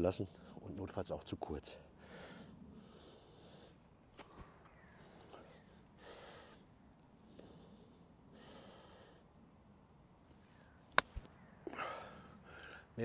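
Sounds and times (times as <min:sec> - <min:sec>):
faint breath: 0:02.0 - 0:03.9, 0:04.8 - 0:09.4, 0:11.6 - 0:13.0.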